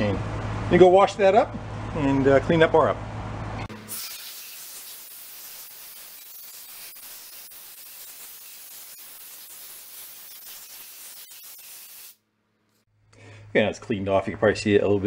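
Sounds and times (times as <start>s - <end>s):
pressure washer spraying: 3.8s - 12.2s.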